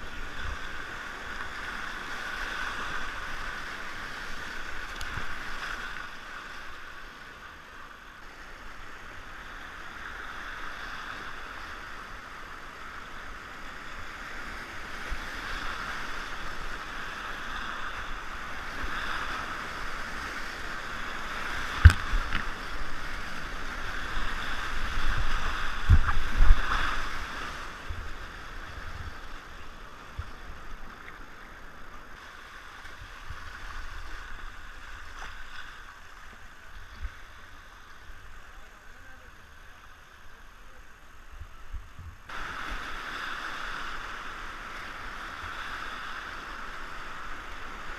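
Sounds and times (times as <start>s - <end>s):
whitewater rushing: 14.3s - 30.9s, 42.3s - 47.9s.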